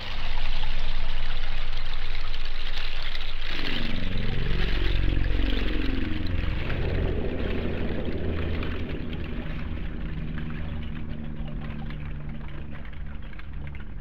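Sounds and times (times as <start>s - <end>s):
grainy noisy texture: 0.0s - 14.0s
low synthesizer drone: 0.0s - 14.0s
gliding tones: 2.8s - 14.0s.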